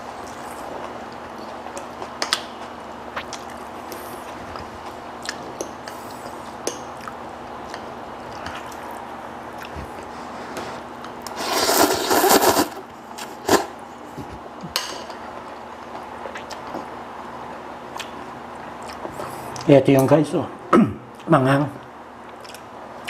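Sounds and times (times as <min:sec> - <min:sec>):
noodles slurped: 0:11.3 - 0:13.7.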